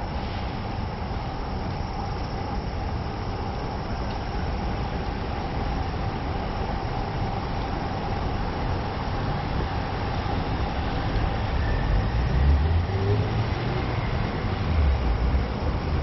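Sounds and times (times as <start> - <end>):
faint steady hum: 0.0 - 16.0
low urban rumble: 0.0 - 16.0.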